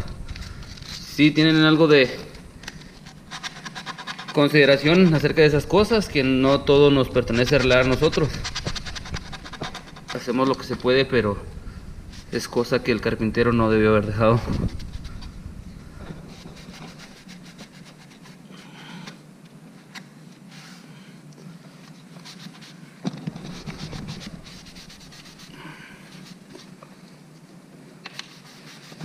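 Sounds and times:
cloth rag rubbing wood: 7.0 - 10.2, 16.2 - 18.5, 22.0 - 26.8, 28.2 - 29.0.

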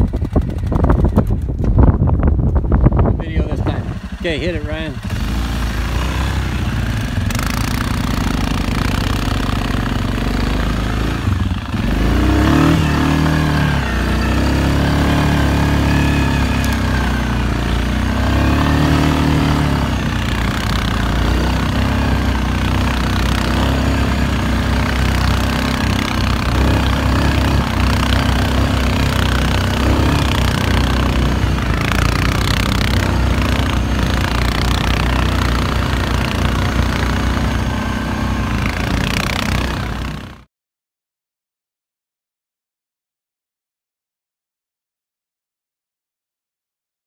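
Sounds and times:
atv engine revving: 0.0 - 40.5.

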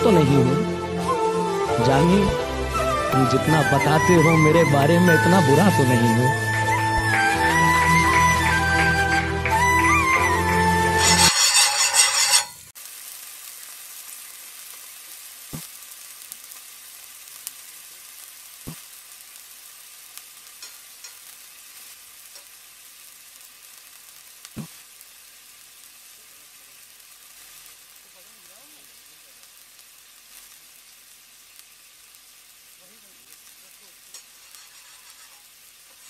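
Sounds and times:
music: 0.0 - 11.4
butter sizzling on a griddle: 1.4 - 36.0.

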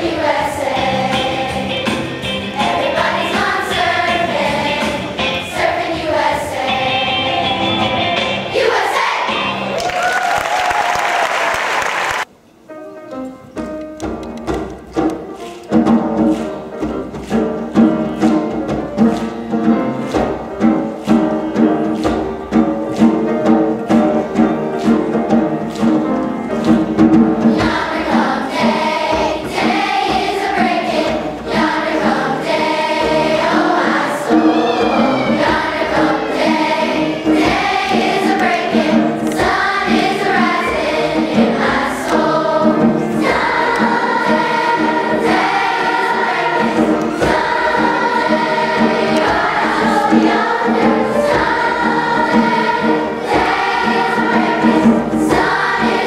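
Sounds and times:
children's choir singing: 0.0 - 9.8, 15.7 - 56.0
piano chords: 12.2 - 56.0.

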